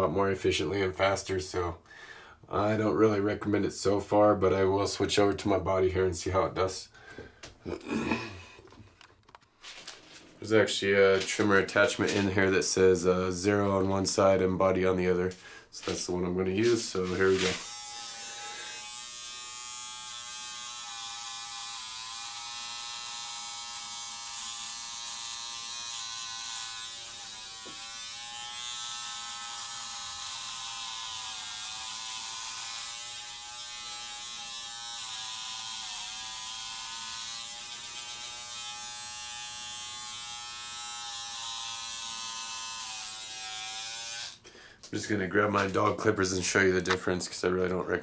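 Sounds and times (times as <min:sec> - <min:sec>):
electric trimmer buzzing: 0:16.7 - 0:44.4.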